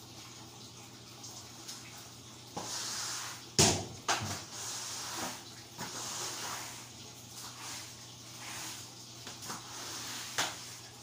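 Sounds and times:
cleaning swishing: 4.4 - 10.9.

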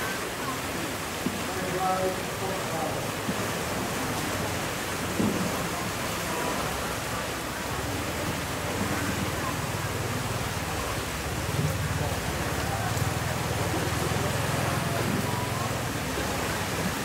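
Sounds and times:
turbulent water rushing: 0.0 - 17.0.

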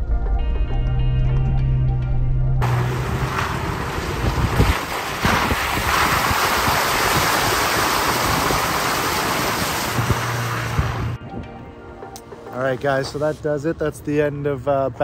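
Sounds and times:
tyre splashing through puddle: 2.6 - 11.2.

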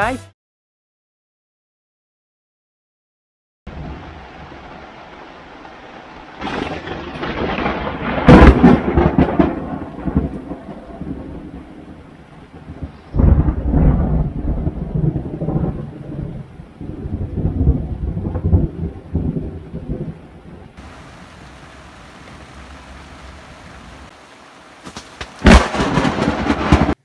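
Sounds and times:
heavy rain on a boat: 3.7 - 27.0
thunder crack and rumble: 6.4 - 24.2, 25.2 - 27.0.

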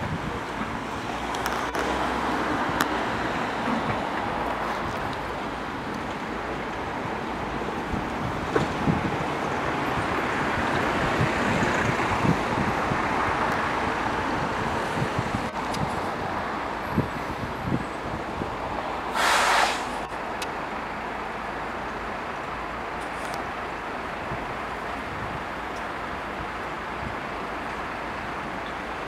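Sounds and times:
wind bumping on microphone: 0.0 - 20.6, 22.9 - 27.4
road traffic noise: 0.0 - 29.0
short loud hiss: 19.1 - 20.1.

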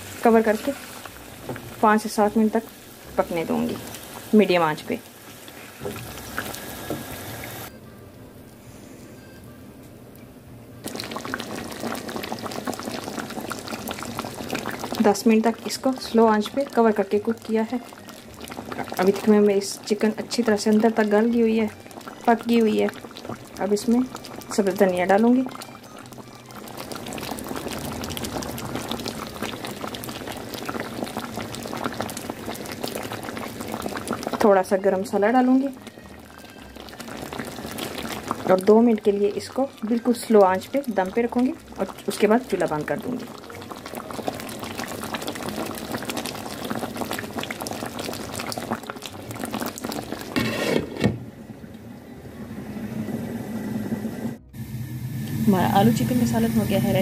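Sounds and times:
curry bubbling in a pan: 0.0 - 7.7, 10.8 - 51.0
glass lid scraping onto pan: 50.2 - 51.2.

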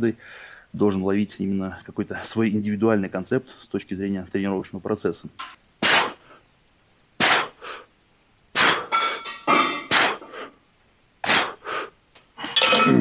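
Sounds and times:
metal weights clanking: 8.9 - 10.0, 12.4 - 13.0.

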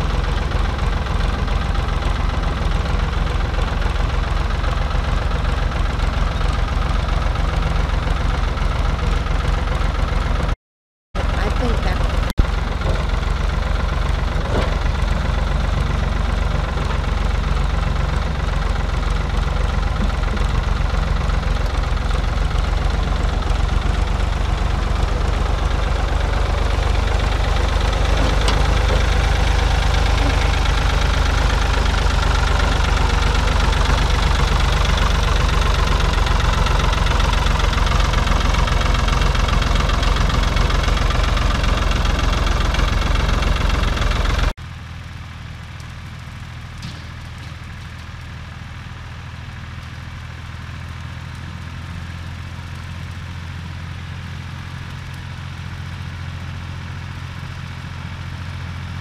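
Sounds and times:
tractor diesel engine running: 0.0 - 10.6, 11.2 - 59.0.

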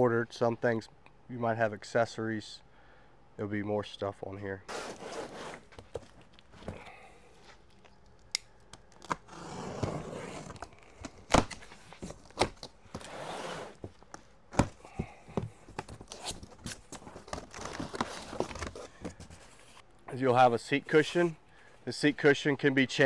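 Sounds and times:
cardboard rustling and scraping: 4.7 - 6.8, 9.2 - 19.8.

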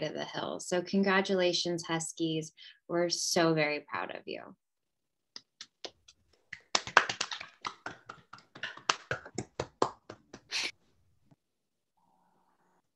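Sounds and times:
people clapping: 5.4 - 10.7.

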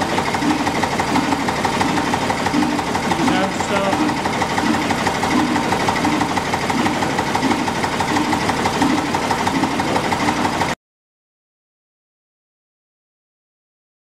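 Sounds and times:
stationary diesel engines running: 0.0 - 10.8.

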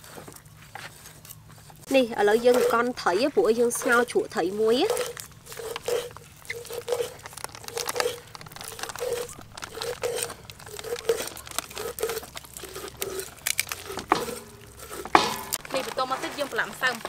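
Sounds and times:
knife crunching through fish scales: 3.7 - 16.0.

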